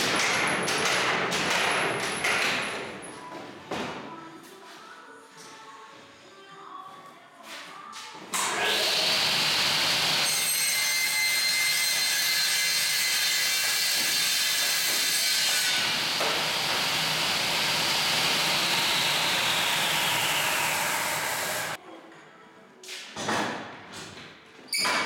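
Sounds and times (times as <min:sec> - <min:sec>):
circular saw cutting wood: 0:08.4 - 0:21.8.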